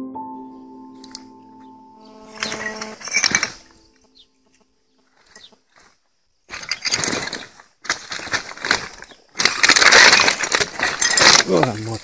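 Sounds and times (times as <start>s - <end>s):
music: 0.0s - 2.2s
dry brush crackling underfoot: 1.0s - 12.0s.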